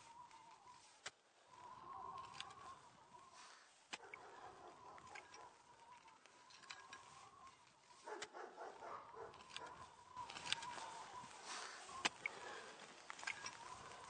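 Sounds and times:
footsteps on grass and dry leaves: 6.3 - 14.0.

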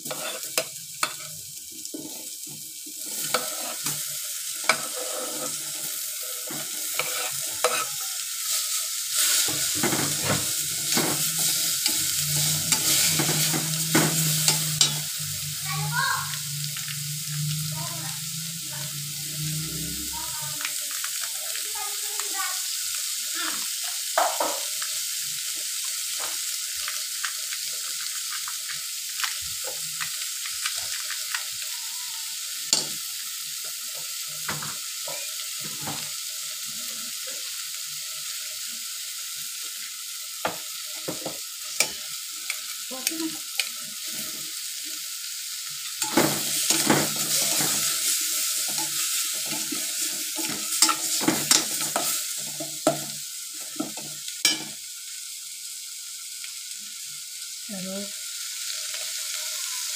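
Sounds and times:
metal spatula scraping pot: 0.0 - 1.3, 3.0 - 4.0, 4.6 - 8.0, 9.2 - 15.1, 46.0 - 52.1
chicken sizzling in a pot: 0.0 - 59.9.

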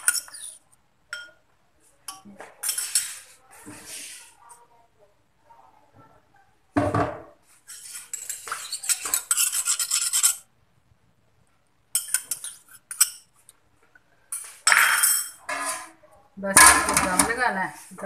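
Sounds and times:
metal utensils and pots clattering: 0.0 - 1.4, 12.0 - 13.3, 14.3 - 17.7.

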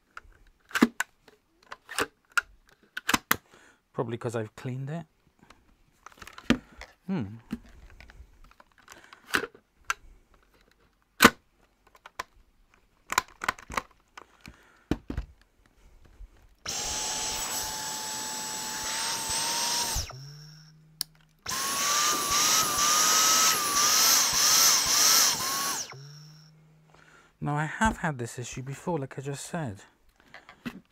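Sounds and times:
plastic clicks and knocks: 13.0 - 15.5
cordless vacuum motor whine: 16.6 - 26.6.

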